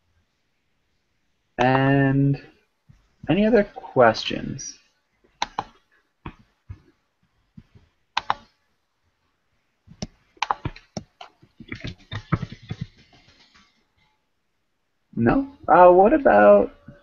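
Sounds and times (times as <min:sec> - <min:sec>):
typing on computer keyboard: 0:05.4 - 0:05.8, 0:08.2 - 0:08.5, 0:10.0 - 0:13.8.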